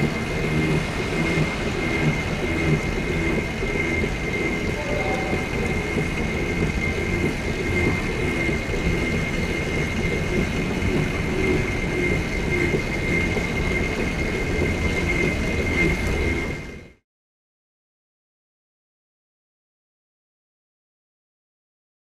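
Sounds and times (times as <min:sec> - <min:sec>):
electric motor whine: 0:00.0 - 0:17.0.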